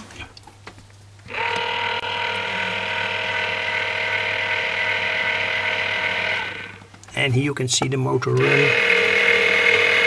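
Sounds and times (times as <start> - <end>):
motor and gear whine: 1.3 - 6.9, 8.3 - 10.0.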